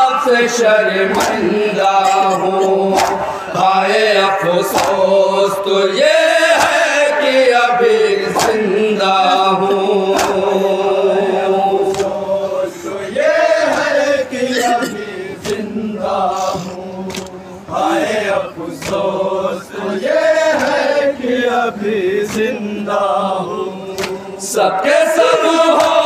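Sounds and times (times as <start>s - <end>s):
men chanting in unison: 0.0s - 26.0s
chest-beating slaps: 1.1s - 1.5s, 2.2s - 3.6s, 4.7s - 5.0s, 8.4s - 8.6s, 10.1s - 10.5s, 11.9s - 12.2s, 17.1s - 17.4s, 18.8s - 19.1s, 24.0s - 24.2s.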